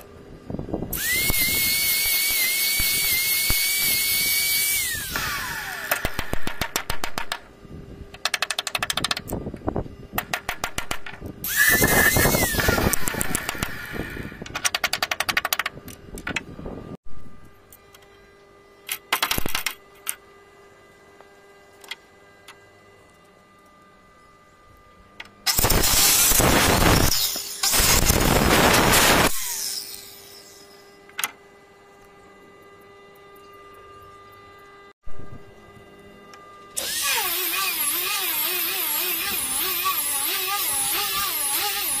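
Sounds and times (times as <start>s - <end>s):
power drill whine: 0.9s - 6.6s, 11.4s - 14.5s, 25.5s - 31.0s, 36.7s - 42.0s
circular saw cutting wood: 1.0s - 6.6s, 11.4s - 14.4s, 25.5s - 31.0s, 36.8s - 42.0s.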